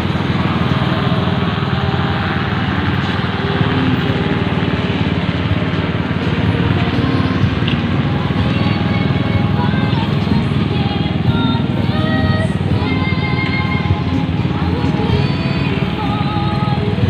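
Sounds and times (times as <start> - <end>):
motorcycle engines idling: 0.0 - 17.0.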